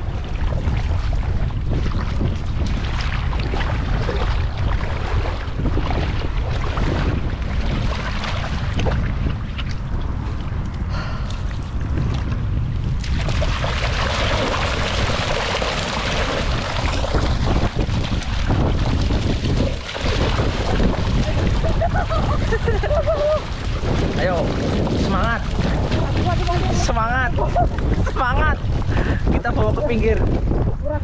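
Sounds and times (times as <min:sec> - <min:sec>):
water sloshing around net: 0:00.0 - 0:10.1, 0:13.0 - 0:28.9
water splashing and streaming: 0:00.0 - 0:30.8
wind buffeting microphone: 0:00.0 - 0:31.0.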